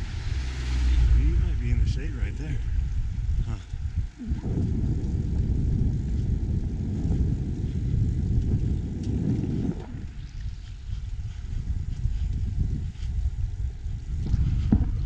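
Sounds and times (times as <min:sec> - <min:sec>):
wind buffeting camera microphone: 0:00.0 - 0:15.0.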